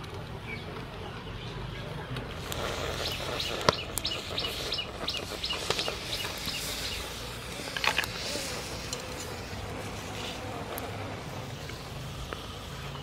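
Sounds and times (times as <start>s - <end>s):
bird chirping: 0.4s - 8.6s.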